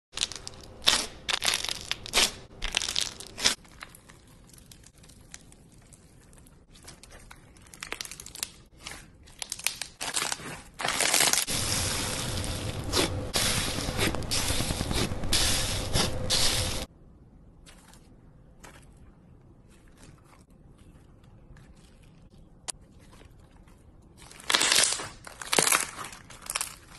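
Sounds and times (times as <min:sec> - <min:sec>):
slime crackling and popping: 0:00.2 - 0:16.9, 0:24.2 - 0:26.9.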